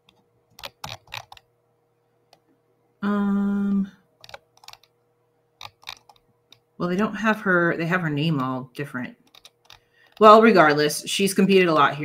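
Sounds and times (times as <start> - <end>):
computer keyboard typing: 0.0 - 1.5, 4.2 - 5.0, 5.6 - 6.6, 9.2 - 10.4.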